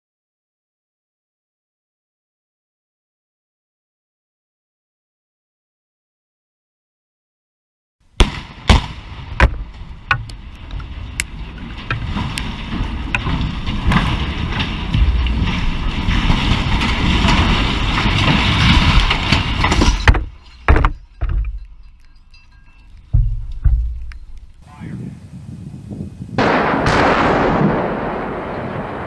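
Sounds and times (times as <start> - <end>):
steel tower crashing down: 8.2 - 24.6, 26.4 - 29.0
explosive charges blasting: 26.4 - 29.0.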